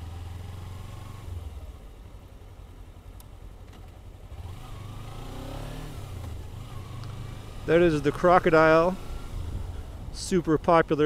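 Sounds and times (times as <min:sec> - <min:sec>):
motorcycle engine revving: 0:00.0 - 0:02.1, 0:04.2 - 0:10.0.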